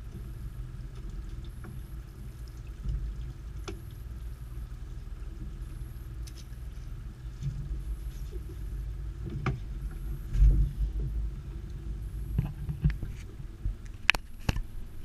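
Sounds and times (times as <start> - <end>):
steady low rumble: 0.0 - 15.0
heavy thump: 9.3 - 11.3.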